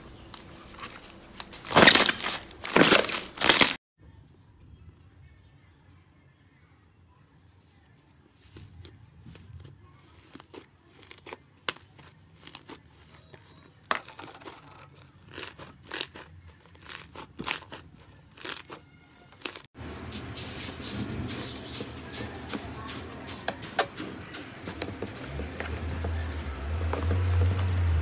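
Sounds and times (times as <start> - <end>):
slime crackling: 9.3 - 19.7.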